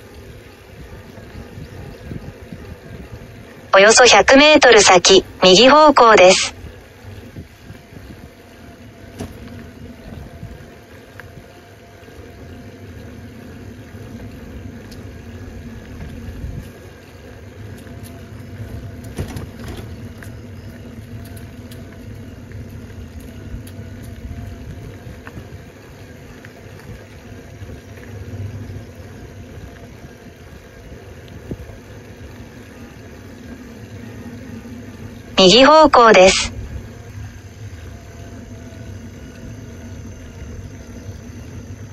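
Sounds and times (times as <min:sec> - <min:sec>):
faint hum: 0:00.1 - 0:41.9
engine and road rumble: 0:06.5 - 0:35.4.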